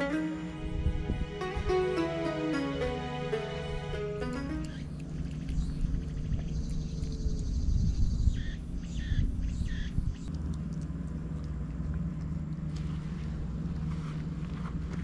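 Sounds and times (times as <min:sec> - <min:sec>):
wind rumble on microphone: 0:00.5 - 0:01.8, 0:05.2 - 0:10.4
dog chewing grass: 0:10.2 - 0:15.0.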